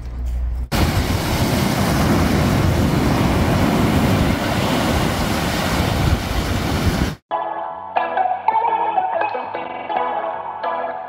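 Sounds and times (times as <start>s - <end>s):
surf breaking on a beach: 0.7s - 7.2s.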